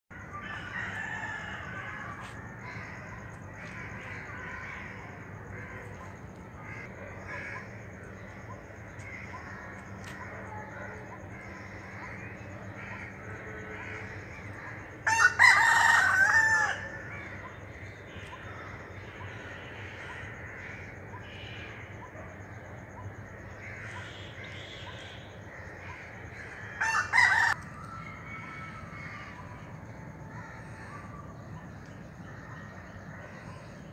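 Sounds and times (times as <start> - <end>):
loud poultry calls: 11.4 - 17.5, 23.6 - 27.6.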